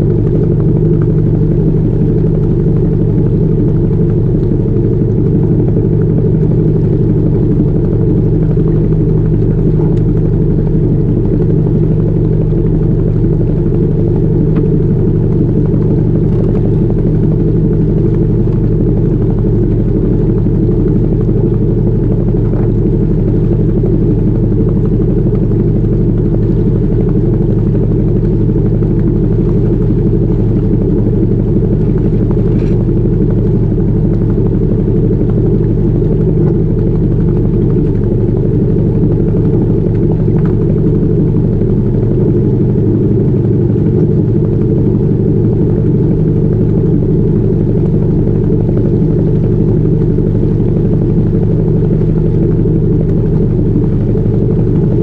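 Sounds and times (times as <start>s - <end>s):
boat engine low hum: 0.0s - 55.0s.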